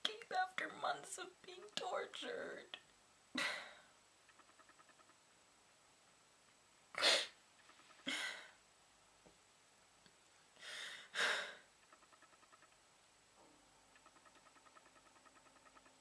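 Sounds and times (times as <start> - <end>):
girl crying with sobbing breaths: 10.6 - 11.6.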